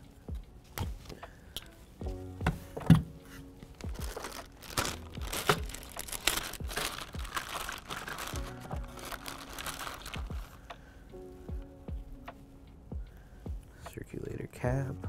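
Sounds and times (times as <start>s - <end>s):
background music with steady beat: 0.0s - 15.0s
plastic bag crinkling: 3.7s - 10.6s.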